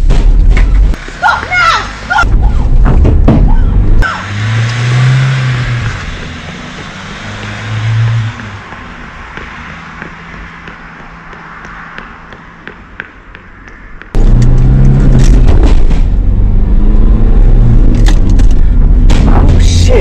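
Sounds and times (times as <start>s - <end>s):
road noise: 0.0s - 20.0s
van engine accelerating: 14.1s - 20.0s.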